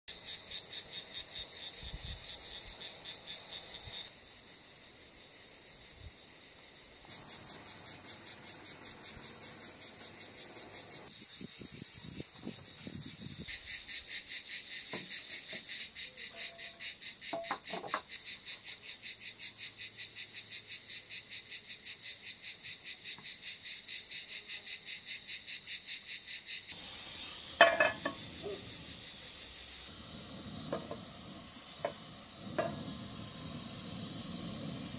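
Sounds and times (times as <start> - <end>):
insects chirping: 0.1 - 34.9
frying pan clacking on burner: 27.6 - 28.3, 30.7 - 31.1, 31.8 - 33.0.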